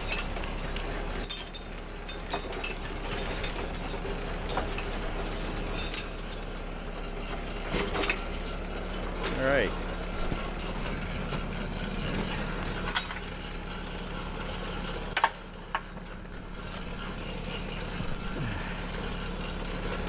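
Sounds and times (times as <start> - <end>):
metallic chain clinks: 0.0 - 6.6, 11.9 - 20.0
tractor diesel engine running: 0.0 - 20.0.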